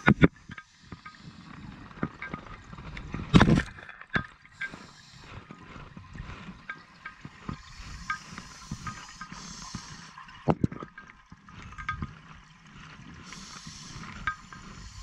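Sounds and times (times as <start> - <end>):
scuba regulator breathing: 0.5 - 2.0, 4.6 - 6.6, 7.3 - 10.4, 12.7 - 15.0.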